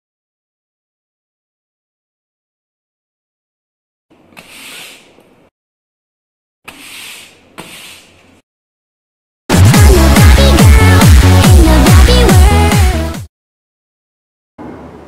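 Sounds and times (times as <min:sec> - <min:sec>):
broom sweeping a rug: 0:04.4 - 0:05.2, 0:06.7 - 0:08.4.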